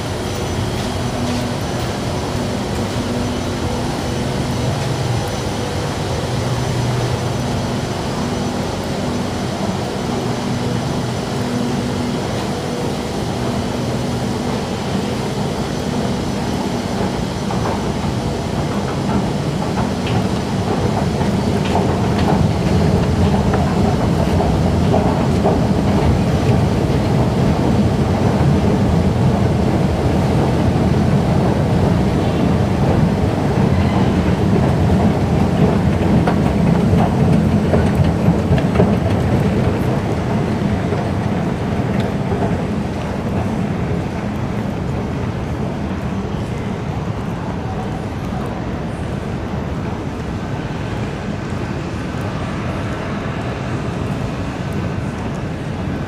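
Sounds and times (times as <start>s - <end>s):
train and machinery rumble: 0.0s - 56.0s.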